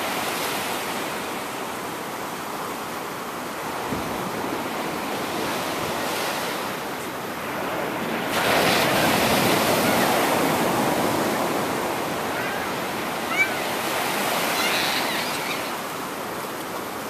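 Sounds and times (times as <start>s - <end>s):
ocean surf washing on beach: 0.0s - 17.0s
wave breaking: 3.6s - 16.7s.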